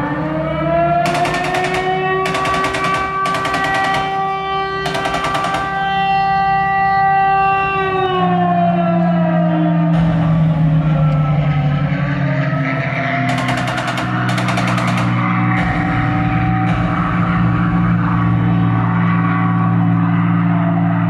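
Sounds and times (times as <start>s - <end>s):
air-raid siren wailing: 0.0s - 21.0s
low steady drone: 0.0s - 21.0s
machine-gun fire: 1.0s - 6.0s, 13.3s - 18.1s.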